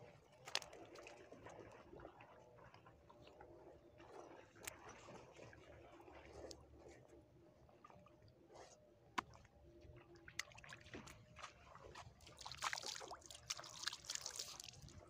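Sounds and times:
wet trickling and crackling: 0.2s - 7.0s, 9.2s - 15.0s
hands splashing among wet fish: 10.3s - 15.0s.

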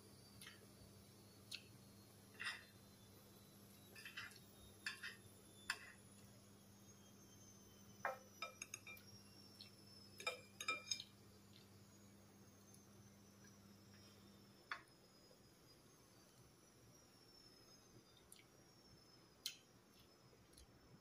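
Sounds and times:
cutlery clinking on a plate: 4.0s - 5.9s, 10.2s - 11.1s.

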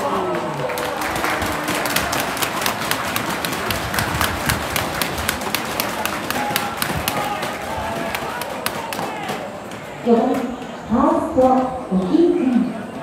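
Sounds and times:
spectators clapping: 0.0s - 9.9s
crowd murmur: 0.0s - 13.0s.

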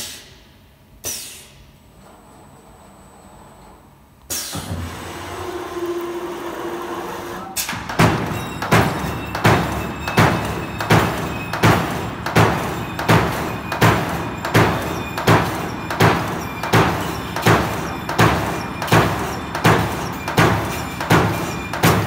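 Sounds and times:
machine running noise: 4.5s - 22.0s
punch press striking metal: 7.5s - 22.0s.

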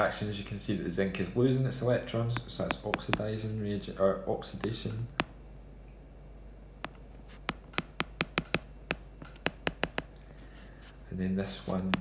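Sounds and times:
faint steady low hum: 0.0s - 12.0s
stylus clicking on drawing tablet: 2.3s - 3.4s, 6.8s - 10.2s, 11.6s - 12.0s.

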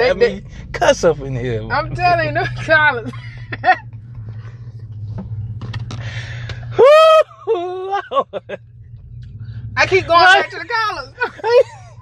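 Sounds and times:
low steady hum: 0.0s - 12.0s
woman shouting woo: 6.8s - 7.3s.

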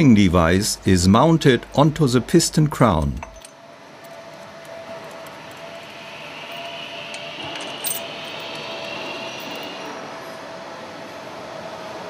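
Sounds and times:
faint high whine: 0.0s - 12.0s
machinery hum: 0.0s - 12.0s
metallic clinks of hand tools: 7.4s - 9.9s.

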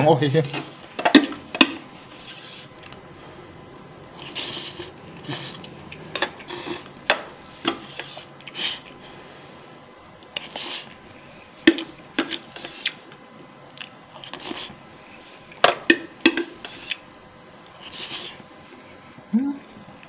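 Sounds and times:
slurping and chewing: 4.1s - 9.0s, 10.2s - 11.0s, 13.7s - 15.6s, 16.2s - 18.4s.

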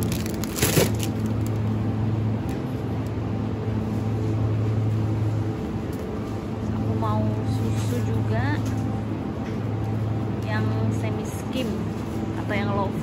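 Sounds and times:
plastic pack dropped into trolley: 0.0s - 1.3s
shopping trolley rolling: 0.0s - 1.7s
refrigerated cabinets humming: 0.0s - 13.0s.

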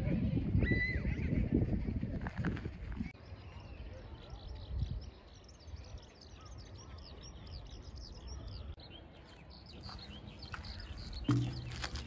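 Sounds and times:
birds chirping: 3.2s - 12.0s.

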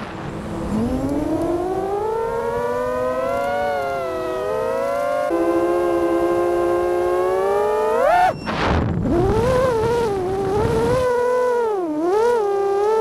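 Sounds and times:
rush of noise with rumble: 0.0s - 5.5s, 8.3s - 11.2s
drone propellers whining: 0.0s - 13.0s.

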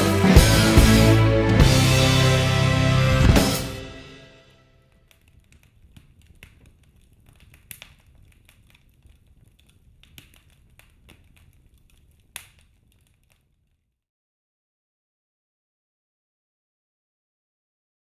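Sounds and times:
wood fire crackling: 4.9s - 13.9s.

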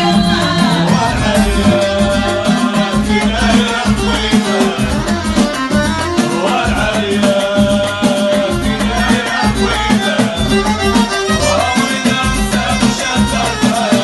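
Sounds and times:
hand drums beat: 0.0s - 14.0s
men singing into microphones: 0.0s - 14.0s
violin melody: 8.8s - 13.5s.

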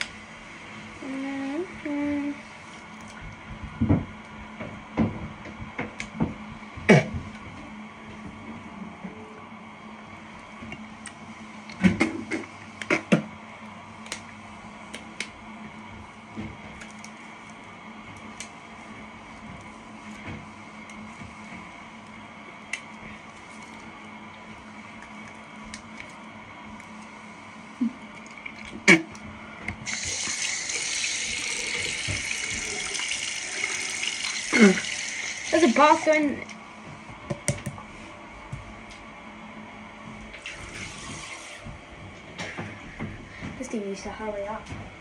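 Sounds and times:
background hum: 0.0s - 45.0s
water running into tub: 29.8s - 36.4s, 40.4s - 41.7s.

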